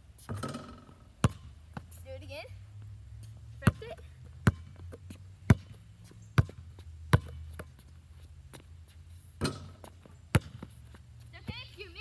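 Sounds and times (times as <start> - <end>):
ball clattering on hoop: 0.3 - 1.4, 9.4 - 10.7
basketball bouncing on concrete: 0.3 - 2.0, 3.6 - 8.7, 9.4 - 12.0.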